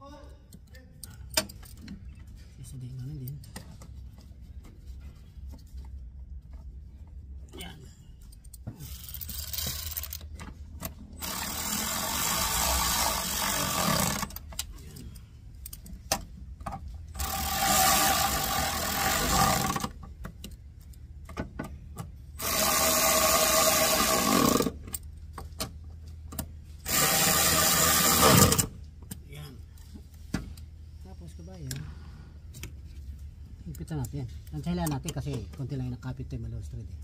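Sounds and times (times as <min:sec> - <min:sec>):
cordless impact wrench driving bolts: 0:11.2 - 0:14.6, 0:17.2 - 0:20.0, 0:22.4 - 0:25.0, 0:26.8 - 0:28.8.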